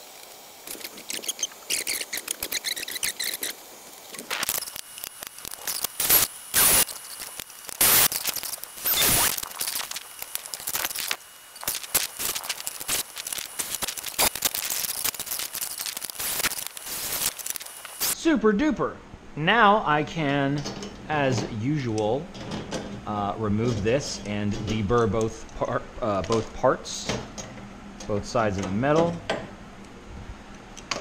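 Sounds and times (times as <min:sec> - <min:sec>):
cordless drill drilling metal: 0:04.4 - 0:18.2.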